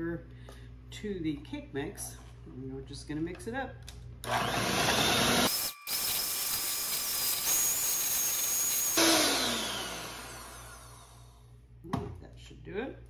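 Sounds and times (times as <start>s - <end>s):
electric hand mixer whining: 4.3s - 11.4s.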